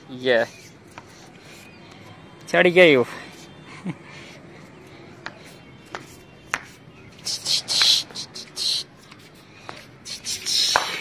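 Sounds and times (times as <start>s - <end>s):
footsteps scuffing on concrete: 0.9s - 2.5s, 5.2s - 8.2s, 8.9s - 10.0s, 10.6s - 11.0s.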